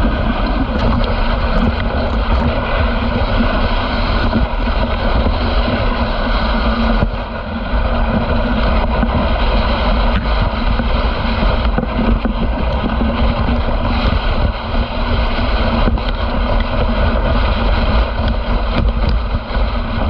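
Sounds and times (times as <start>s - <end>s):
sled runners scraping on snow: 0.0s - 20.0s.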